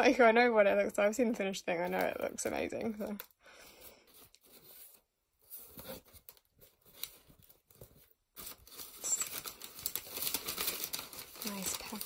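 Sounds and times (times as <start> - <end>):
crumpled newspaper rustling: 4.0 - 12.0.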